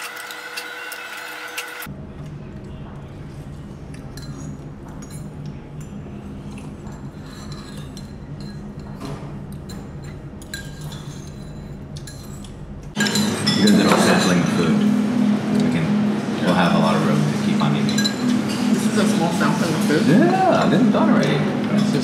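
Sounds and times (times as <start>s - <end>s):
steady low hum: 1.8s - 22.0s
spoons clinking on ceramic bowls: 9.7s - 14.7s.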